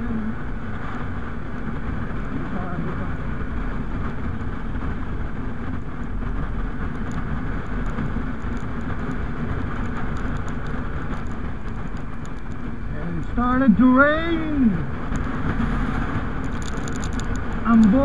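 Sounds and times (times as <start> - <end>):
motorcycle engine running: 0.0 - 18.0
wind and road noise: 0.0 - 18.0
faint ticks: 6.8 - 12.7, 16.4 - 18.0.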